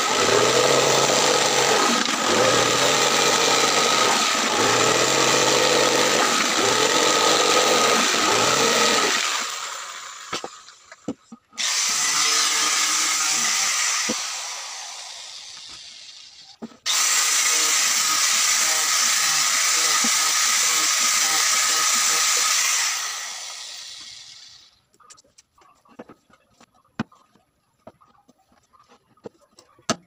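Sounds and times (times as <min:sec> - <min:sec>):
jigsaw cutting plywood: 0:00.0 - 0:10.6, 0:11.6 - 0:24.7
power tool running: 0:00.0 - 0:10.6, 0:11.6 - 0:24.8.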